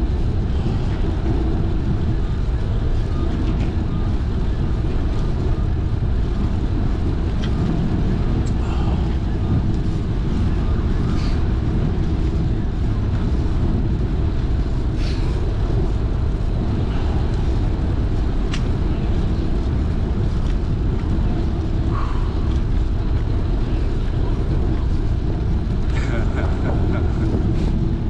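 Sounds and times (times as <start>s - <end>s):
bicycle tyres rolling on asphalt: 0.0s - 26.2s
wind buffeting microphone: 0.0s - 28.0s.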